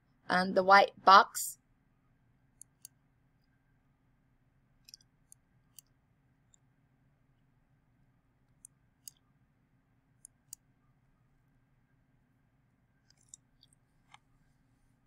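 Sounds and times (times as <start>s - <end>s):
faint low hum: 0.0s - 15.0s
computer mouse clicks: 2.6s - 3.0s, 4.8s - 6.7s, 8.5s - 9.2s, 10.2s - 10.7s, 13.0s - 14.3s.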